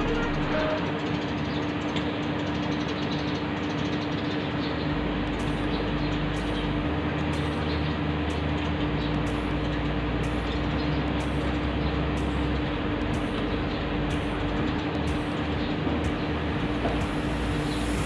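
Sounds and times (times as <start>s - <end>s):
water pump motor hum: 0.0s - 18.0s.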